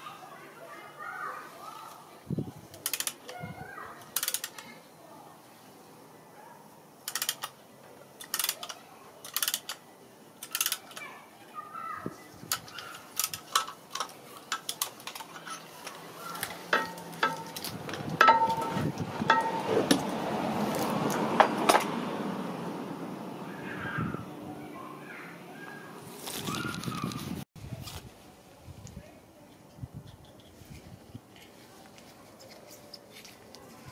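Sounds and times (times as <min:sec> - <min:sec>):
screwdriver tapping metal: 0:07.1 - 0:07.6, 0:16.7 - 0:20.0
metal clatter and scraping: 0:12.6 - 0:20.2
short metallic rings: 0:16.7 - 0:17.6, 0:18.2 - 0:19.8.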